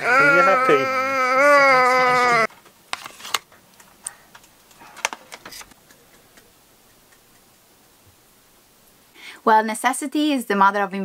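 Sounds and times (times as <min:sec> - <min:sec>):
baby crying: 0:00.0 - 0:02.5.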